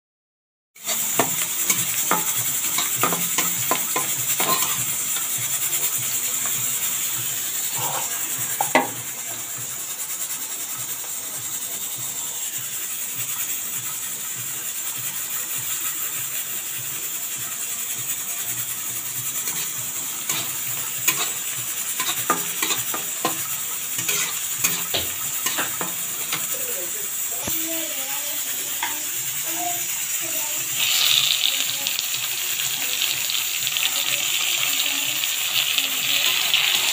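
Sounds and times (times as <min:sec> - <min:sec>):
spatula scraping a pan: 0:00.8 - 0:09.0, 0:18.7 - 0:27.6
onions sizzling in oil: 0:00.8 - 0:36.9.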